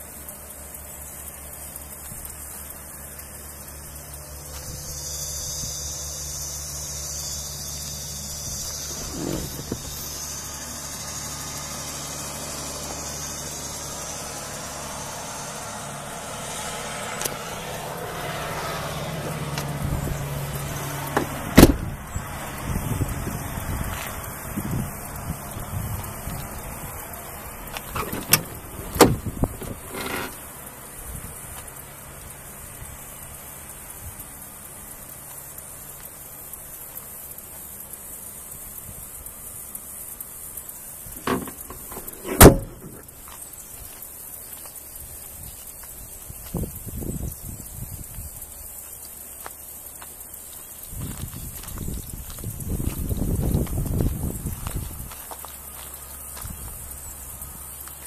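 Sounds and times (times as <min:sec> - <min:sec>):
pickup engine idling: 0:00.0 - 0:38.2, 0:40.0 - 0:44.0
car door slamming: 0:08.7 - 0:10.0, 0:21.1 - 0:21.9, 0:27.9 - 0:30.3, 0:41.2 - 0:43.1
car door knock: 0:41.2 - 0:43.0.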